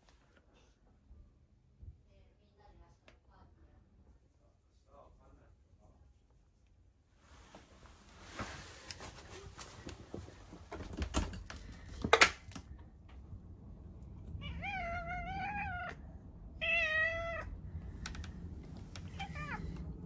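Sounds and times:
cat meowing: 14.3 - 17.6, 19.0 - 19.8.

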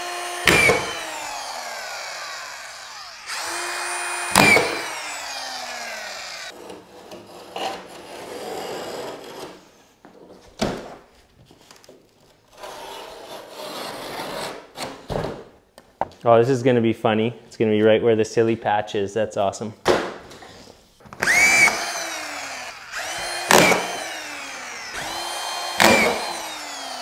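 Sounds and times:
screw gun motor whine: 0.0 - 6.5, 21.2 - 27.0
drywall board scraping: 6.5 - 9.8, 12.5 - 15.0.

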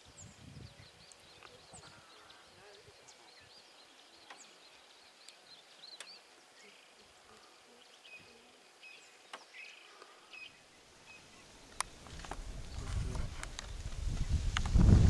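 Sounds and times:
small birds chirping: 0.0 - 14.7.

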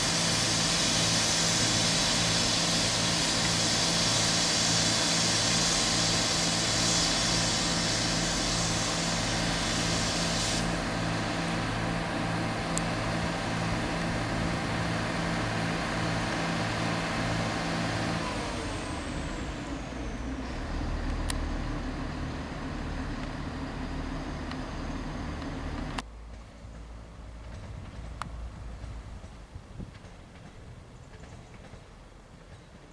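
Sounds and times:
high hiss: 0.0 - 11.6
train diesel engine drone: 0.0 - 32.9.

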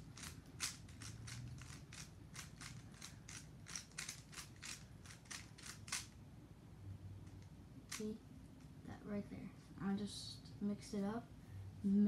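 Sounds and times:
speed cube clicking: 0.0 - 6.2.

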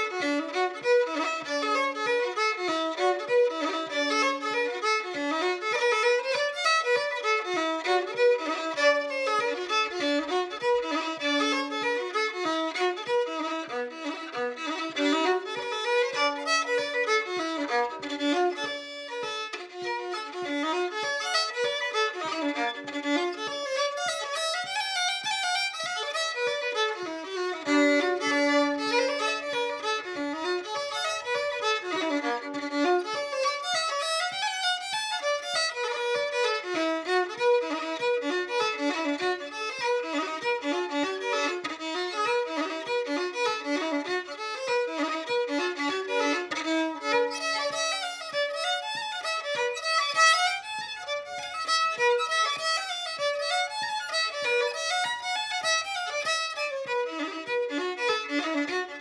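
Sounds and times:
solo fiddle playing a reel: 0.0 - 59.0.

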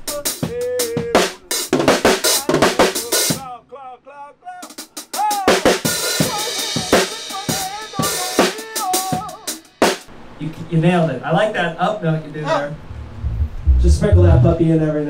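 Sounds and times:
man singing into microphone: 0.0 - 1.7, 2.3 - 9.5
drum kit beat: 0.0 - 3.5, 4.6 - 10.1, 13.0 - 14.6.

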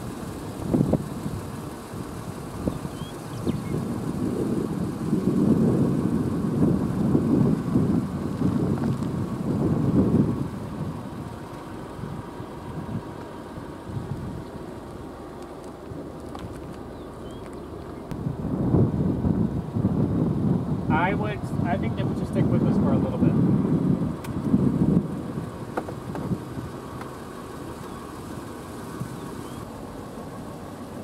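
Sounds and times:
gusting wind: 0.0 - 31.0
thunder rumbling: 2.0 - 13.1, 18.1 - 26.9.

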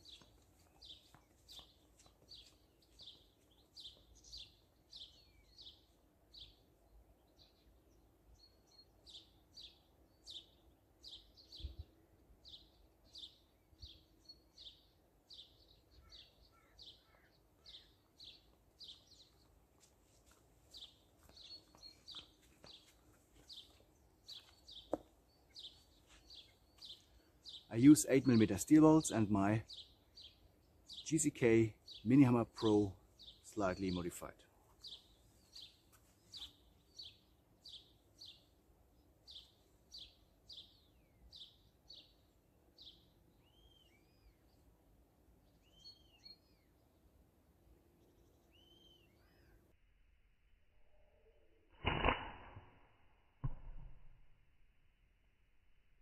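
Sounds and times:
small bird chirping: 0.0 - 6.6, 20.2 - 27.7, 39.3 - 44.6, 45.4 - 46.8, 48.1 - 49.6
sharp knock: 53.4 - 54.0.

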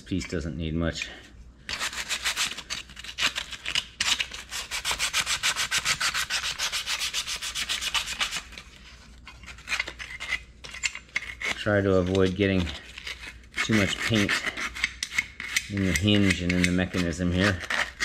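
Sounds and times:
wire brush scrubbing rusty steel: 11.1 - 18.0.

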